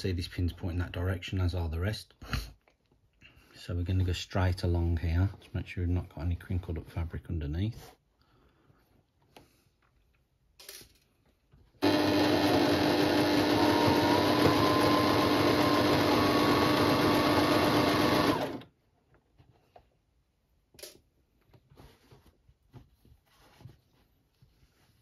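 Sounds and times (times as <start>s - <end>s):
sewing machine running: 11.8s - 18.7s.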